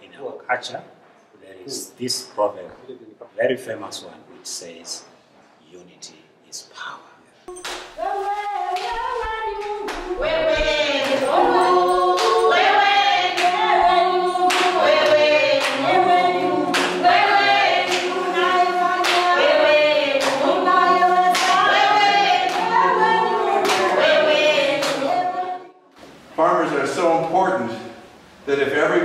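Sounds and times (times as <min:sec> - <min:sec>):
hand claps: 0:07.5 - 0:08.0, 0:08.8 - 0:15.8, 0:16.7 - 0:17.1, 0:17.8 - 0:18.2, 0:19.0 - 0:19.4, 0:20.2 - 0:20.6, 0:21.3 - 0:21.8, 0:22.4 - 0:22.8, 0:23.6 - 0:24.0
group singing unaccompanied: 0:07.5 - 0:26.0.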